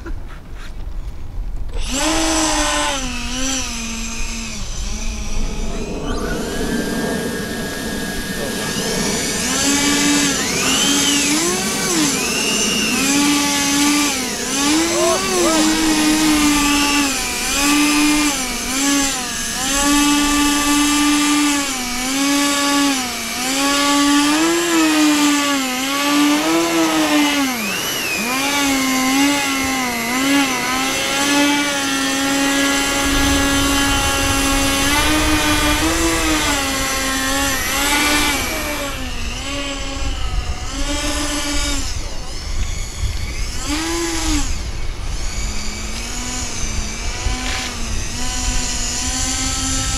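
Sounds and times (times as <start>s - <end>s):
electric ducted fans whining: 0.0s - 49.9s
low rumble: 3.6s - 14.5s.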